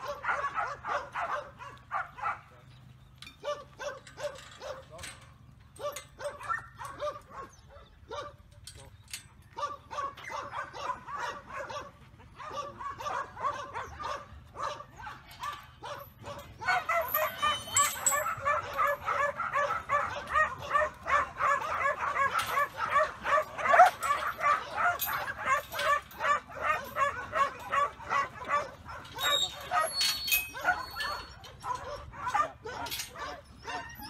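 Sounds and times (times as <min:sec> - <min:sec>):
dog barking rapidly: 0:00.0 - 0:02.5, 0:09.6 - 0:15.2, 0:15.8 - 0:33.9.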